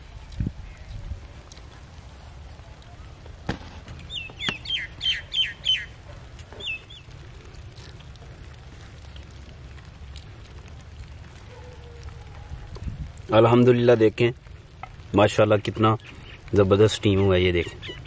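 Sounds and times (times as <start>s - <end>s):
bird chirping: 4.0s - 7.1s, 17.0s - 18.0s.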